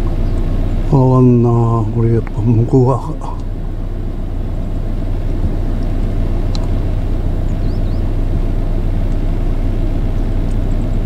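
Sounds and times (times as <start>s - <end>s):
road traffic rumble: 0.0s - 11.0s
faint high chirps: 7.4s - 8.2s.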